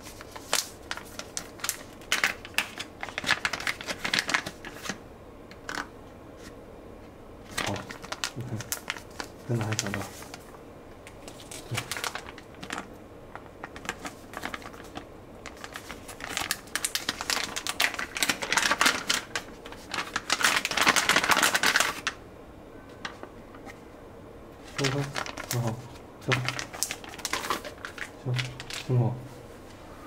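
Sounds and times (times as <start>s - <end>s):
foil pouches crinkling: 0.0s - 5.0s, 7.5s - 10.5s, 11.2s - 22.2s, 24.6s - 29.1s.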